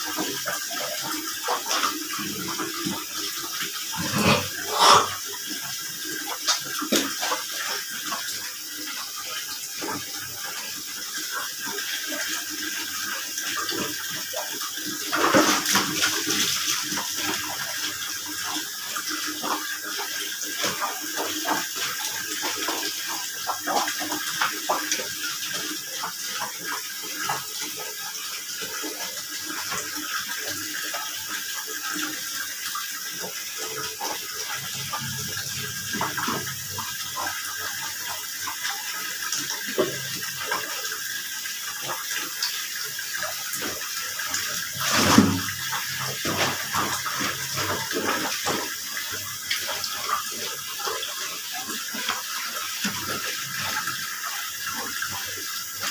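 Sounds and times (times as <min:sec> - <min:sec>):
soap scrubbing wet fabric: 0:03.9 - 0:05.2.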